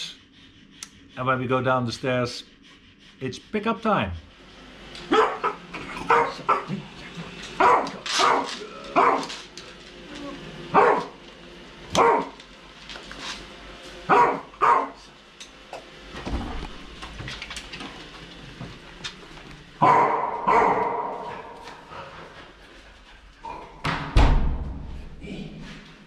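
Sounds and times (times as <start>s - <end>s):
dog barking in short bursts: 5.1s - 6.7s, 7.6s - 9.3s, 10.8s - 11.1s, 12.0s - 12.3s, 14.1s - 15.0s, 19.8s - 21.2s.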